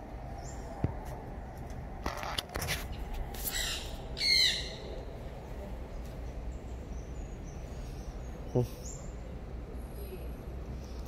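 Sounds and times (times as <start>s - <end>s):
parrot squawking: 3.5s - 4.8s.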